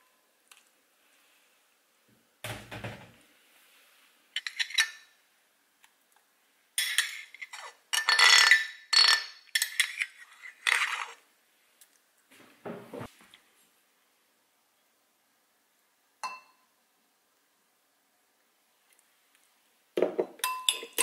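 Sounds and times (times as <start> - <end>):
metal spoon scraping ceramic bowl: 4.4 - 5.1, 6.8 - 11.2.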